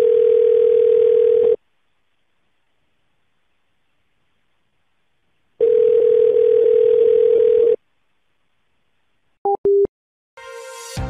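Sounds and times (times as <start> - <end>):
steady telephone line tone: 0.0 - 1.6, 5.6 - 7.8.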